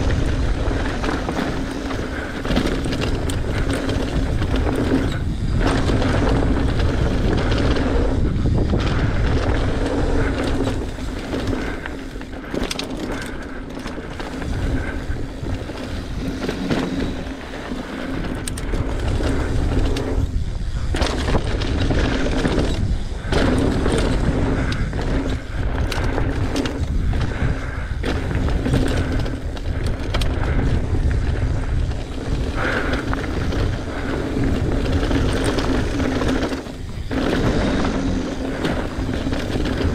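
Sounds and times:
bike knocking and rattling: 0:00.0 - 0:39.9
bike tyres rumbling over dirt: 0:00.0 - 0:39.9
wind buffeting microphone: 0:00.0 - 0:39.9.

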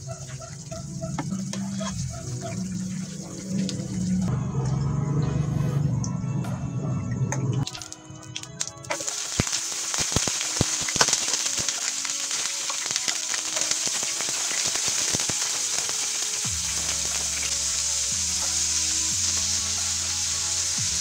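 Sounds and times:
oil popping and crackling: 0:00.0 - 0:04.3, 0:07.6 - 0:21.0
vegetables sizzling in oil: 0:07.6 - 0:21.0.

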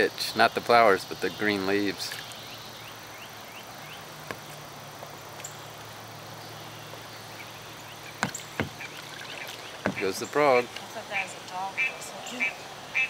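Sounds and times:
steady outdoor hiss: 0:00.0 - 0:13.0
sharp short knocks: 0:08.2 - 0:08.9, 0:09.8 - 0:10.1.

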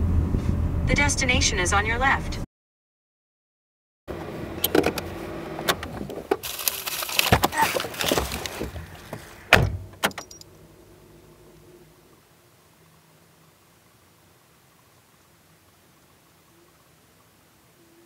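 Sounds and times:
rustling and clicking in a car: 0:04.1 - 0:10.6
car door shutting: 0:04.2 - 0:10.5.

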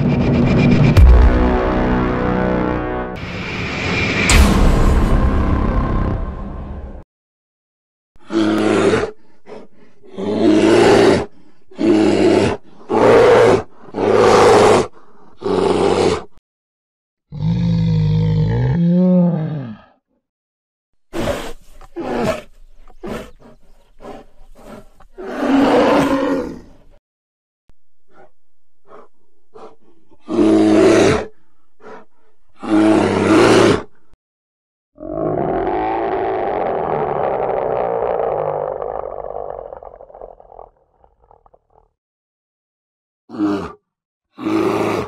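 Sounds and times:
bear roaring: 0:08.2 - 0:16.3, 0:17.3 - 0:20.0, 0:21.1 - 0:26.8, 0:28.1 - 0:33.9, 0:35.0 - 0:41.9, 0:43.3 - 0:43.8, 0:44.4 - 0:45.0
bear huffing: 0:21.1 - 0:25.4, 0:28.1 - 0:30.4
bear growling: 0:35.0 - 0:41.9.

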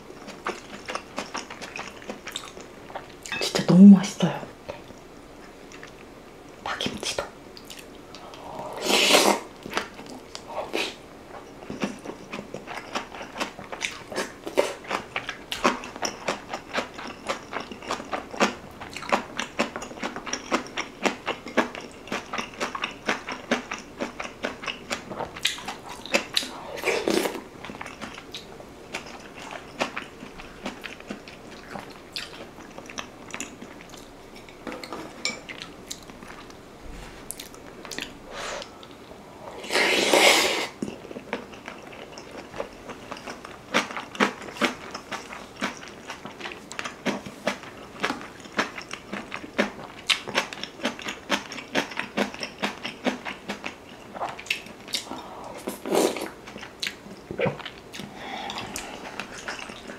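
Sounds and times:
wet chewing and mouth clicks: 0:00.2 - 0:03.4, 0:05.7 - 0:08.4, 0:11.3 - 0:34.5, 0:40.7 - 0:59.9
slurping: 0:08.3 - 0:09.5, 0:39.6 - 0:40.9, 0:54.9 - 0:56.4.

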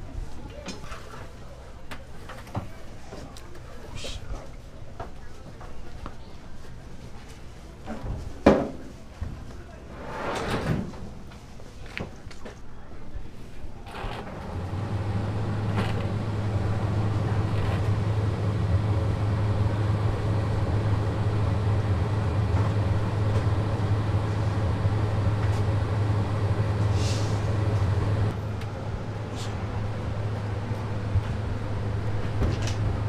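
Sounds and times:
mechanical rumble with hum: 0:13.9 - 0:33.0
brief hiss: 0:26.9 - 0:27.5.

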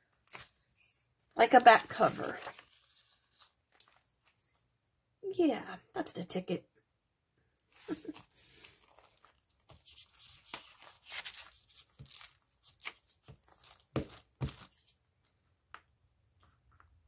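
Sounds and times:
paper sheets handled: 0:01.5 - 0:04.4, 0:07.8 - 0:15.0.

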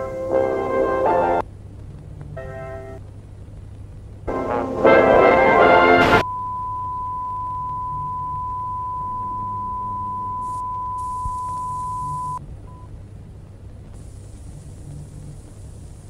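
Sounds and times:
low hum: 0:00.0 - 0:16.0
steady test tone: 0:04.3 - 0:12.9.

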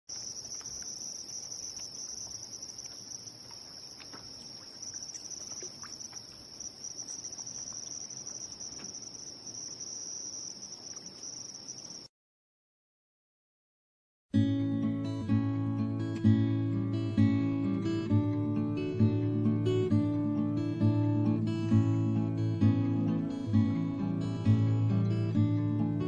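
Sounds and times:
crickets chirping: 0:00.0 - 0:12.1.

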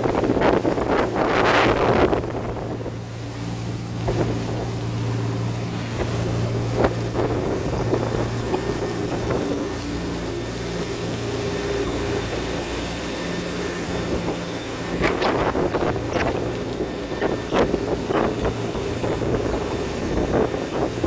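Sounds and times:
boat engines droning: 0:00.0 - 0:21.0
rush of churned wake: 0:00.0 - 0:21.0.

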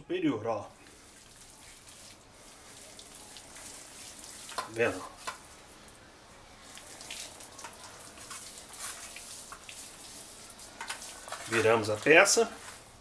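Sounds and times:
hands smearing wet paste on meat: 0:00.8 - 0:06.0, 0:06.6 - 0:13.0.

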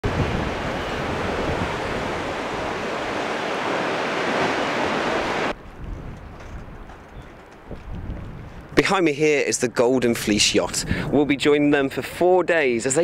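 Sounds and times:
ocean waves breaking: 0:00.0 - 0:05.6.

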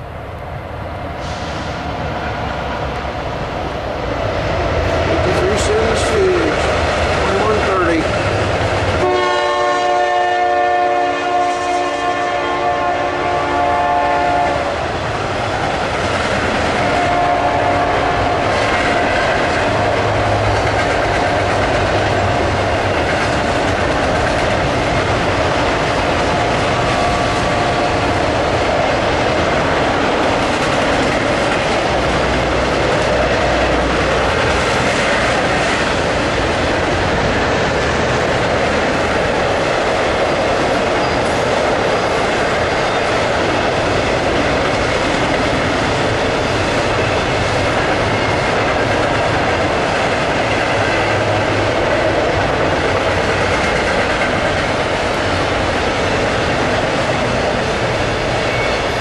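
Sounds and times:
freight train wheels rolling: 0:00.0 - 0:59.0
train horn: 0:09.0 - 0:14.8, 0:16.9 - 0:18.4.

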